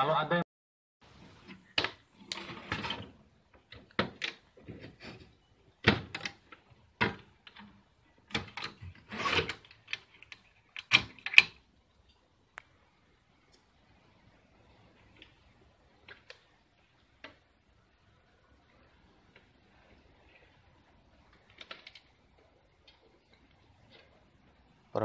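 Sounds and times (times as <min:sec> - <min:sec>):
knocks and rattles of handling: 0:01.2 - 0:12.3.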